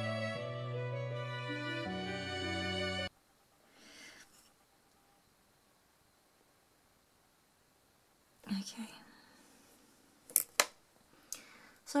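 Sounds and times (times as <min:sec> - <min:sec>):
background music: 0:00.0 - 0:03.1
faint short breath: 0:03.6 - 0:04.5, 0:11.1 - 0:11.8.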